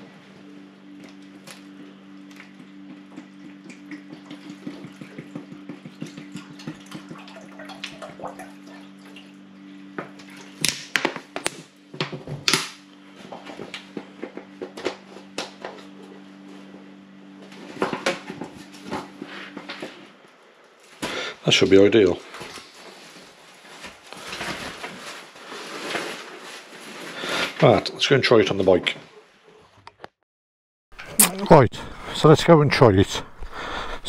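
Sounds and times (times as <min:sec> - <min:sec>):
water pouring and glugging: 0:03.4 - 0:09.4.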